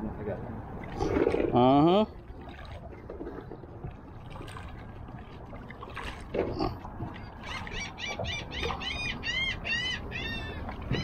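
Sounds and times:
high-pitched animal calls: 7.4 - 11.0.

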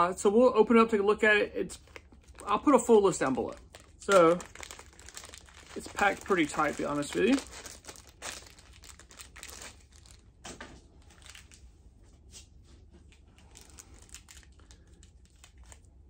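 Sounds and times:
plastic and foil packets crinkling: 1.7 - 11.7, 13.2 - 16.0.

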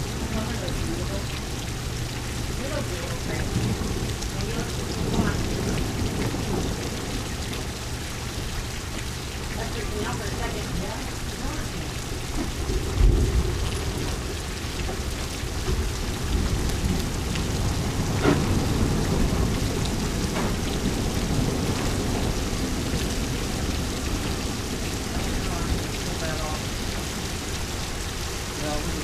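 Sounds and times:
steady rain falling: 0.0 - 29.0
thunder rumble: 0.0 - 29.0.

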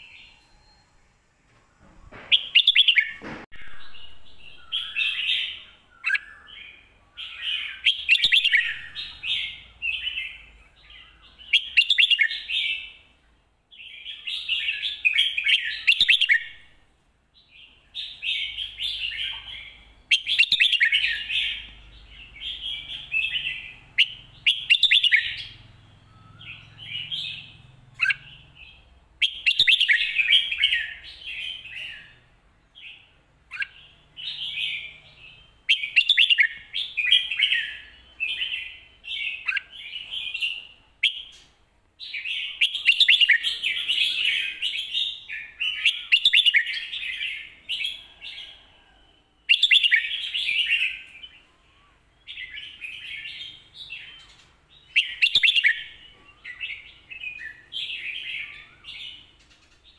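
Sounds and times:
bulbul singing: 2.2 - 13.1, 17.4 - 48.6, 49.4 - 59.9.

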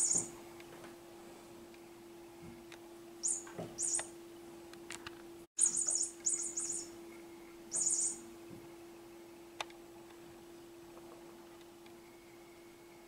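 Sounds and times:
steady low hum: 0.0 - 13.0
toy mouse squeaking: 5.6 - 6.9, 7.8 - 8.2.

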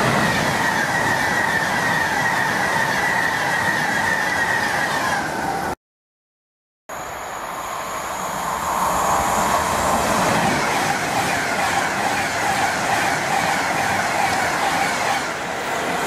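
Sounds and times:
train passing at speed: 0.0 - 5.8, 6.9 - 16.0
faint falling whine: 6.9 - 10.1.

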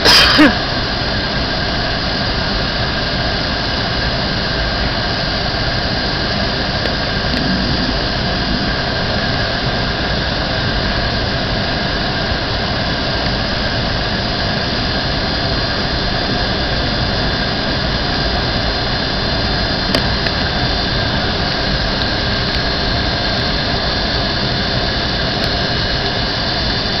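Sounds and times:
airliner cabin engine noise: 0.0 - 27.0
engine whining tones: 6.5 - 10.4.

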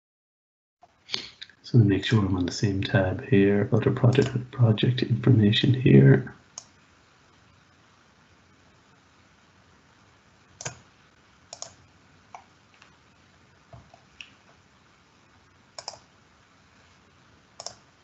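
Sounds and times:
faint room hiss: 0.8 - 18.0
computer mouse clicking: 4.1 - 4.4, 10.6 - 10.8, 11.5 - 12.5, 15.8 - 16.1, 17.6 - 17.9.

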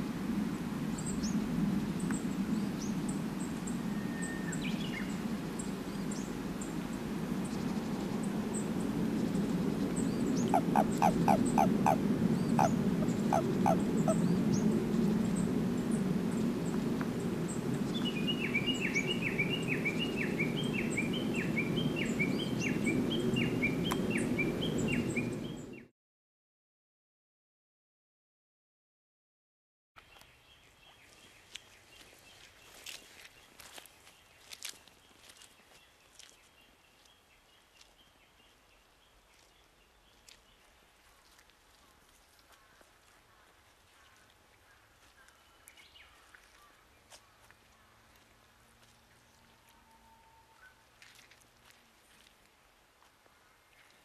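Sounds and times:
soft footsteps on mud: 30.0 - 49.8, 50.8 - 54.0.

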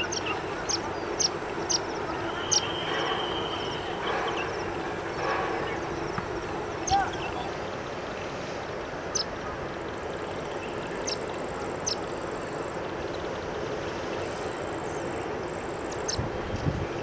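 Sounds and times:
bird peeping: 0.0 - 4.8
steady background hiss: 0.0 - 17.0.

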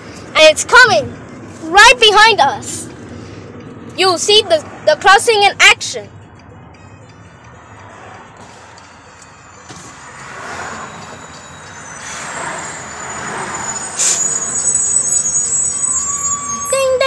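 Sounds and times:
road traffic passing: 0.0 - 17.0
crossing warning bells ringing: 4.2 - 17.0.

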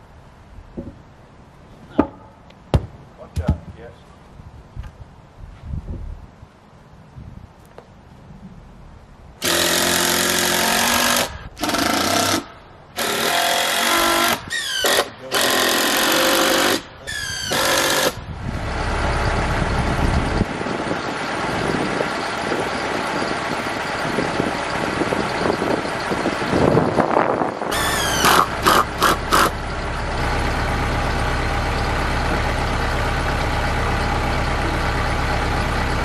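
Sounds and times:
tractor diesel engine running: 9.4 - 36.0
power driver bursts: 27.7 - 29.6.

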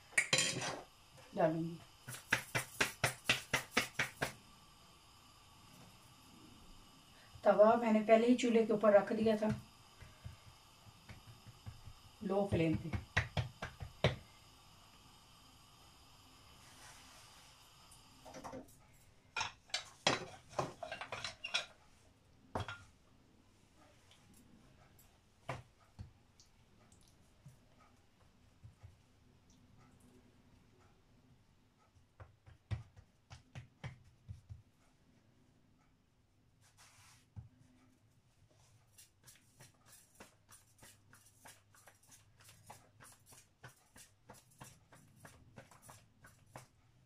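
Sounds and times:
utensils clinking on a plate: 0.2 - 0.8
dough patted between hands: 2.0 - 4.4, 9.5 - 14.2, 32.0 - 34.7
soft rustle: 16.6 - 17.5, 36.5 - 43.4.

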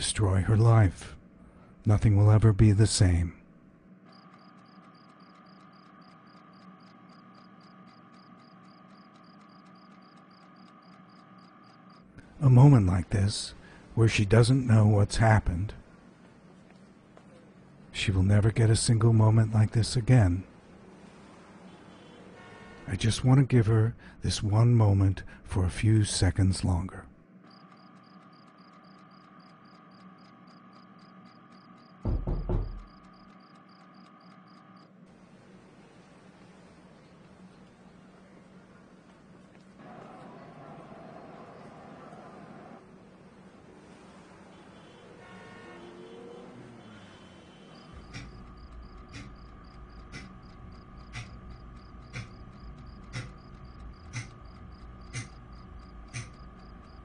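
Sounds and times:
faint steady hum: 0.0 - 57.0
cricket chirping: 4.1 - 12.2, 27.5 - 34.9, 39.8 - 42.8, 43.9 - 57.0
knocks at a door: 32.0 - 33.0.

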